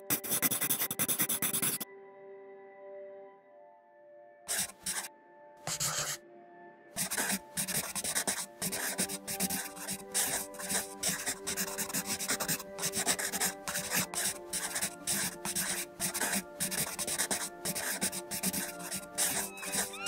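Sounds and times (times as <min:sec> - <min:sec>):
brush strokes on paper: 0:00.0 - 0:01.8, 0:04.5 - 0:05.1, 0:05.7 - 0:06.2, 0:07.0 - 0:20.0
soft background music: 0:00.0 - 0:20.0.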